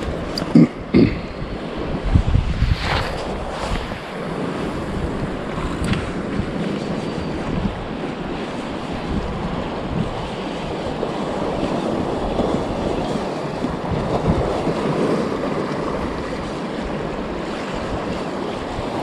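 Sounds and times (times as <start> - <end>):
waves washing over rocks: 0.0 - 19.0
wind buffeting microphone: 0.0 - 19.0.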